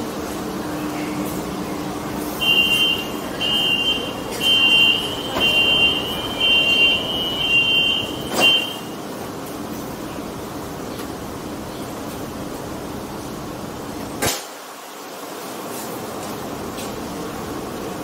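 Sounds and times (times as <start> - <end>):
short high warning beeps: 2.4 - 9.0.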